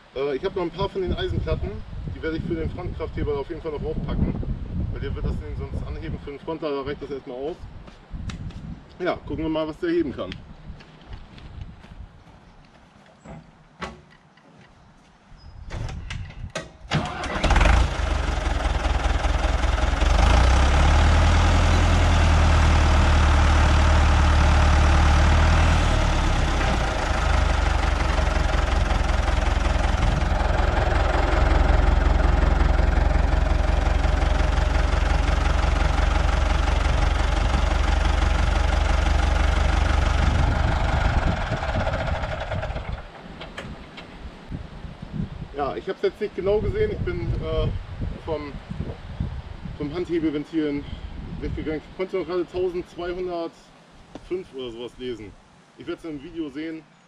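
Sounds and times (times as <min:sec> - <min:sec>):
tractor diesel engine running: 0:16.9 - 0:44.2.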